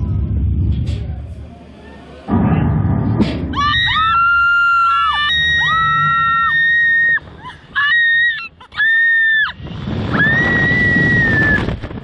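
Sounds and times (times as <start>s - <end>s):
wind rush on microphone: 9.3s - 12.0s.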